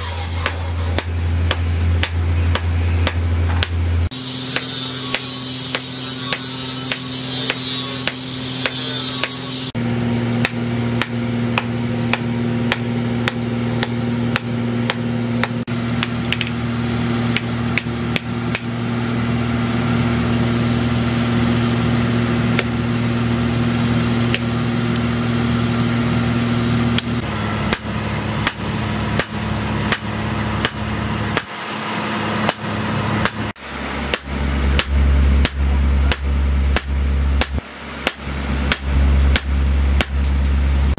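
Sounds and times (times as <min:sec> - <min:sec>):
hammer striking metal on anvil: 0:00.0 - 0:09.8, 0:10.4 - 0:16.6, 0:17.3 - 0:18.7, 0:27.0 - 0:31.5, 0:32.4 - 0:33.5, 0:34.1 - 0:40.4
steady low hum: 0:00.0 - 0:40.9.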